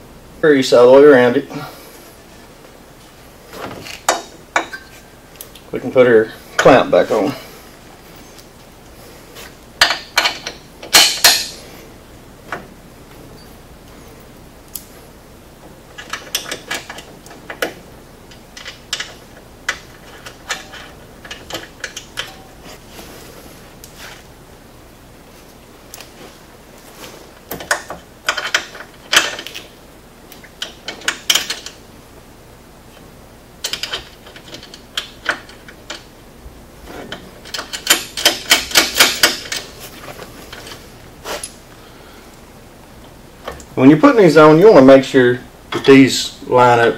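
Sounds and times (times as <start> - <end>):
hand ratchet clicking: 37.4 - 39.6.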